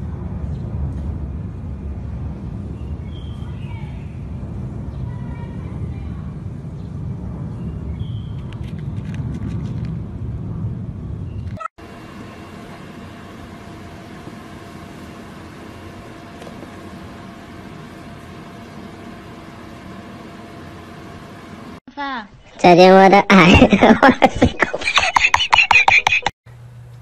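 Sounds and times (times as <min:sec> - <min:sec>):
low rumble: 0:00.0 - 0:11.6
steady hum with humming tones: 0:00.0 - 0:27.0.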